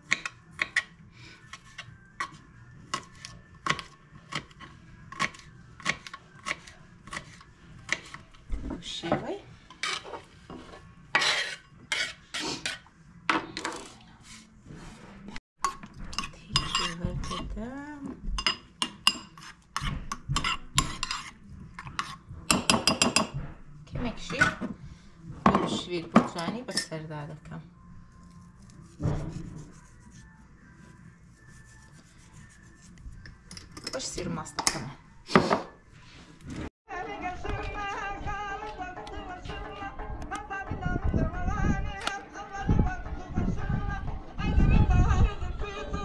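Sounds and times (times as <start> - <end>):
knife scraping board: 3.0 - 8.2, 9.7 - 12.8, 19.4 - 22.3.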